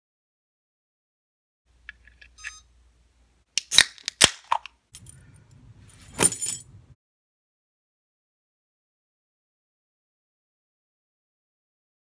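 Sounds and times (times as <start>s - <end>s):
metallic buckle clinks: 4.9s - 6.8s
cloth rustling: 5.8s - 6.7s
trousers clattering on floor: 5.9s - 6.7s.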